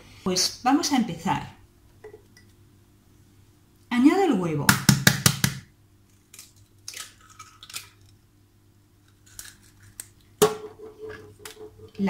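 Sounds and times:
eggshell crackling: 6.0 - 8.3, 8.9 - 12.0.

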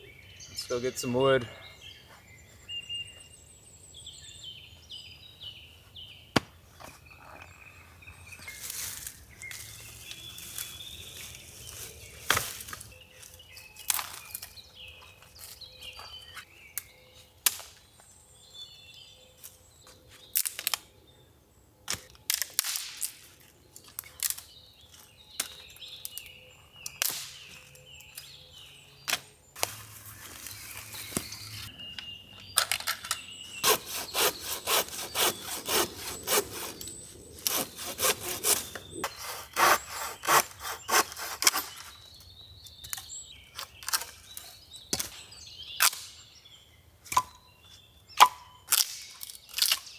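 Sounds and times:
hand saw cutting wood: 33.5 - 41.9.

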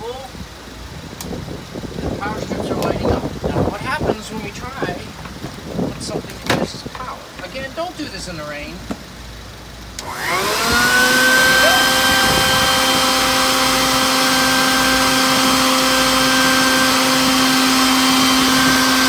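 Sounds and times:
shop vacuum motor whine: 10.0 - 19.0.

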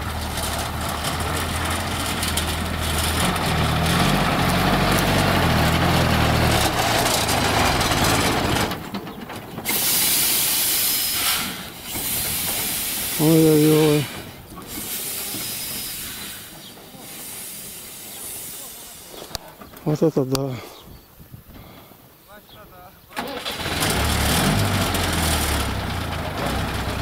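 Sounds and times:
truck engine rising in pitch: 0.0 - 18.8, 23.2 - 27.0
loud air hiss: 9.7 - 19.3.

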